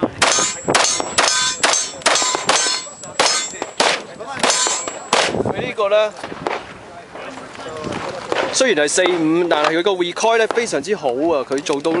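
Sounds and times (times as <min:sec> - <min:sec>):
pistol shots with short ring: 0:00.2 - 0:05.4.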